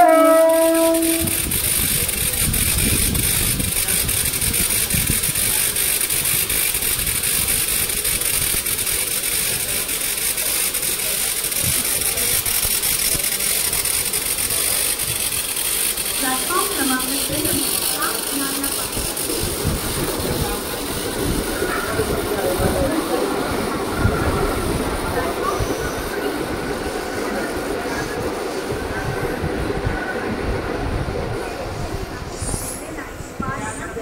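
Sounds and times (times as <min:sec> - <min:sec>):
train horn blast: 0:00.0 - 0:01.6
electric train rumble and hiss: 0:00.0 - 0:34.0.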